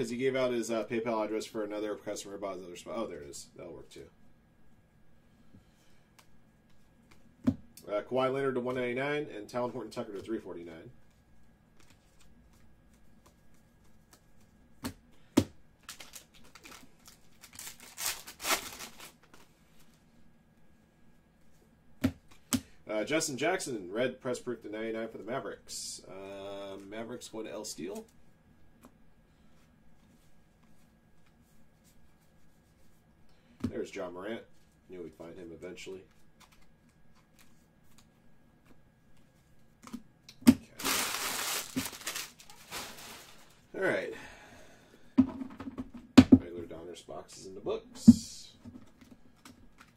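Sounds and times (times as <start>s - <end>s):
foil wrapper tearing and crinkling: 15.8s - 19.3s, 40.8s - 43.6s
cards rustling: 15.8s - 20.0s, 36.0s - 38.2s, 40.8s - 43.6s.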